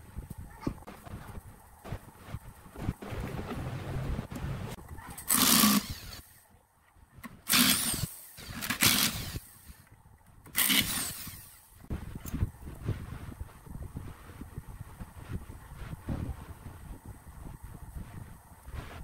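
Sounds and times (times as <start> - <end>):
power drill motor bursts: 5.2 - 6.4, 7.4 - 9.8, 10.5 - 11.8.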